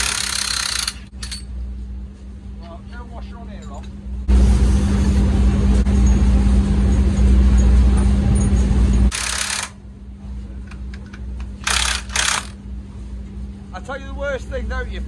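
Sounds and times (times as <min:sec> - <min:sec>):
impact wrench running: 0:00.0 - 0:01.4, 0:09.1 - 0:09.8, 0:11.5 - 0:12.6.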